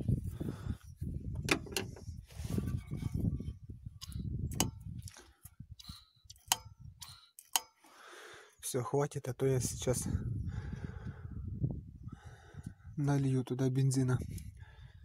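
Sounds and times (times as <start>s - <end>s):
low rumbling microphone noise: 0.0s - 5.1s, 9.6s - 13.0s.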